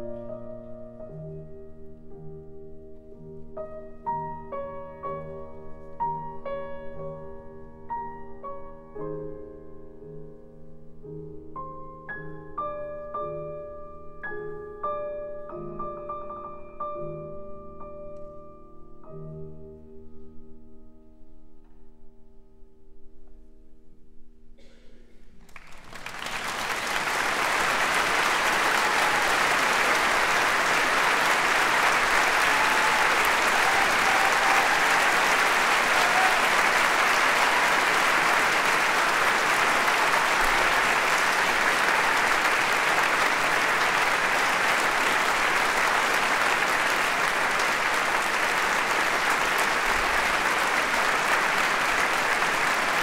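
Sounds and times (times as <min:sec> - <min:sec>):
audience applauding: 0:25.4 - 0:53.0.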